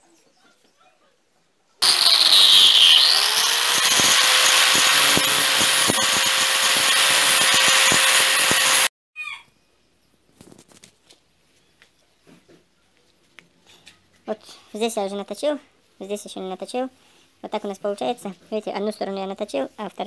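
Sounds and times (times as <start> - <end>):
angle grinder grinding steel: 1.8 - 8.9.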